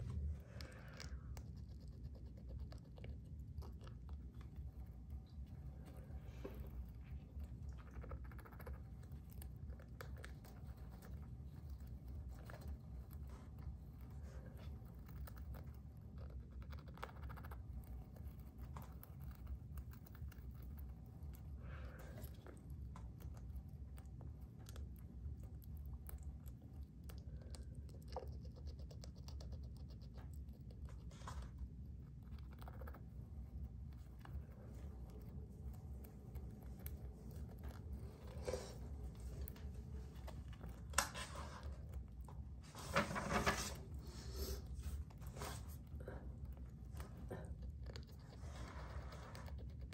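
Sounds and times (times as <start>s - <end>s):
hamster scratching and gnawing: 0.0s - 49.9s
low steady hum: 0.0s - 49.9s.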